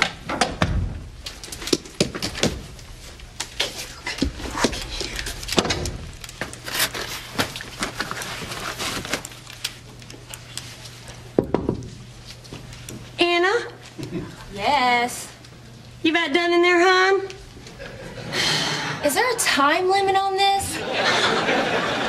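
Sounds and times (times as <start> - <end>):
footsteps: 0.0 - 9.1
steady low hum: 0.0 - 22.0.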